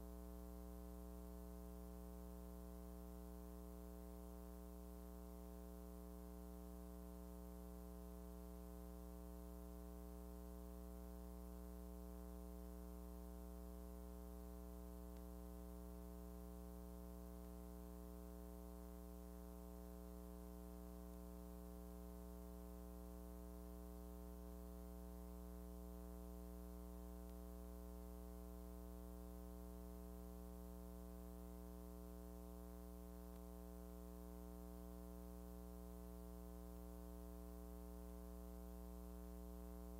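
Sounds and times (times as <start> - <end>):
faint electrical hum: 0.0 - 39.9.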